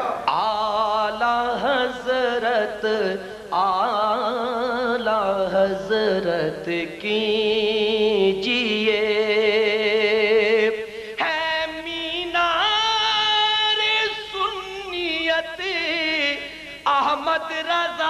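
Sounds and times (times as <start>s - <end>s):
man singing into a microphone: 0.0s - 18.0s
singer breathing: 3.2s - 3.5s, 10.8s - 11.2s, 16.4s - 16.9s.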